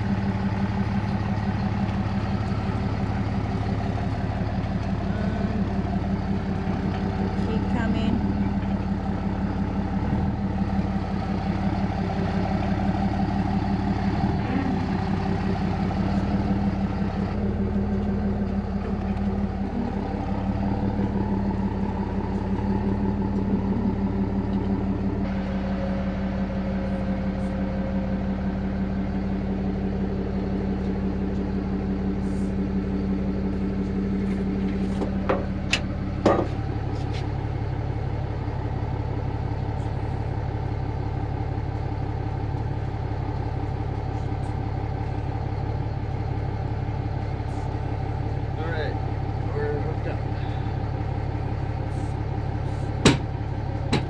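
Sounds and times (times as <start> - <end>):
pickup truck engine idling: 0.0 - 54.0
sharp knocks: 53.0 - 53.3.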